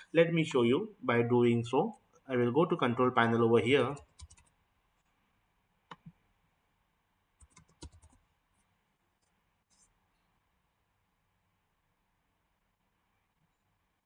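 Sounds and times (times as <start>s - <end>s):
keyboard keystrokes: 7.4s - 8.2s.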